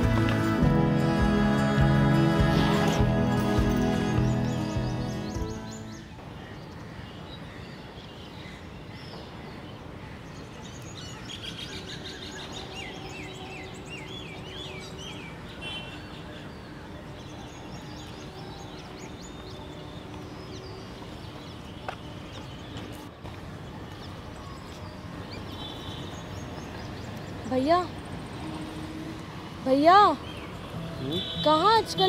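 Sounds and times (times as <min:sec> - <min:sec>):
background music: 0:00.0 - 0:06.2
small birds chirping: 0:02.7 - 0:06.1.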